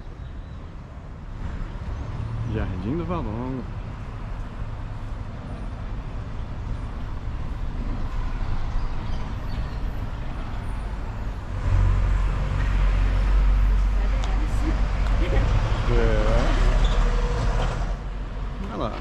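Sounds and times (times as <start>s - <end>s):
city street traffic: 0.0s - 19.0s
heavy vehicle rumbling past: 4.6s - 18.5s.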